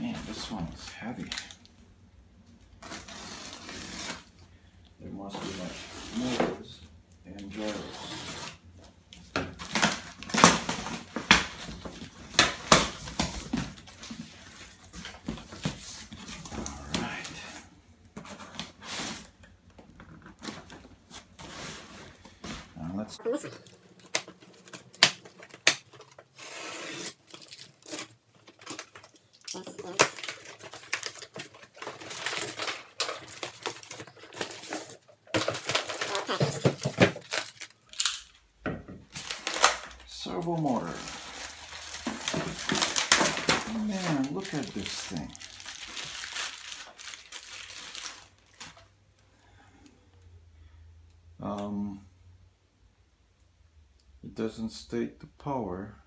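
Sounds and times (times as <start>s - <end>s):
packing tape ripping off cardboard: 2.8s - 4.4s, 9.6s - 14.0s, 24.0s - 38.3s, 39.1s - 39.9s
cardboard scraping and rustling: 5.3s - 6.7s.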